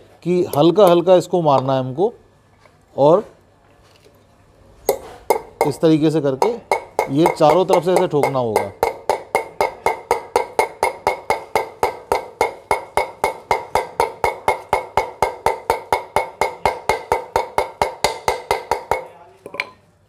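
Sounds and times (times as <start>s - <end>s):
hammer tapping metal: 4.9s - 19.8s.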